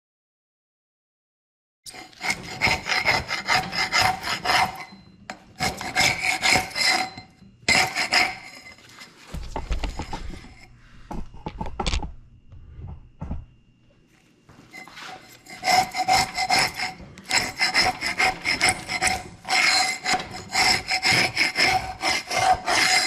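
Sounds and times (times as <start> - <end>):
steel scraper rasping on wood: 1.9 - 10.7, 14.7 - 23.0.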